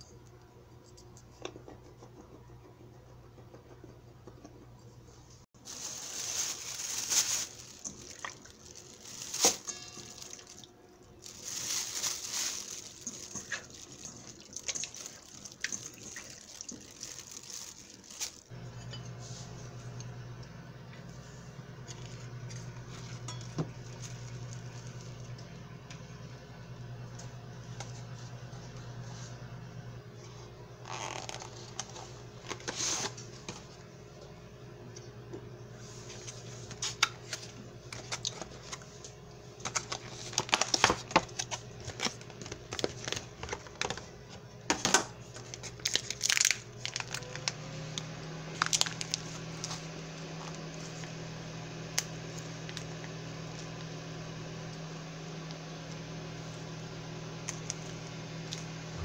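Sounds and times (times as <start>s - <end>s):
low steady hum: 0.0s - 59.0s
plastic packaging crinkling: 5.6s - 18.6s, 30.8s - 33.2s, 39.6s - 44.1s, 45.2s - 49.8s.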